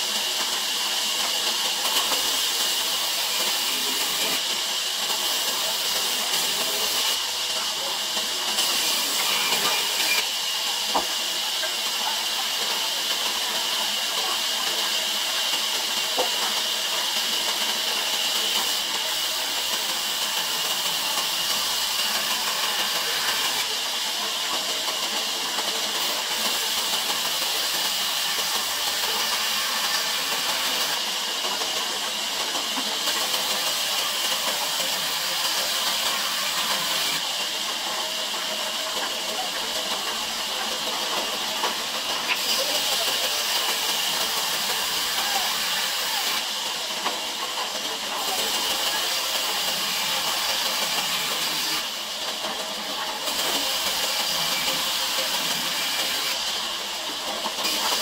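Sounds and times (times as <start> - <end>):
band saw cutting timber: 1.2 - 11.8, 17.2 - 23.8, 25.5 - 31.0, 32.4 - 37.4, 42.2 - 46.5, 48.0 - 52.0, 53.1 - 58.0.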